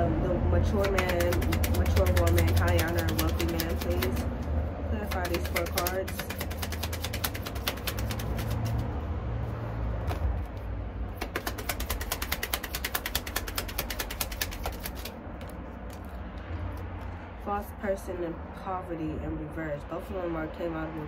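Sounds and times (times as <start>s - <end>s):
cards being shuffled: 0.7s - 17.2s.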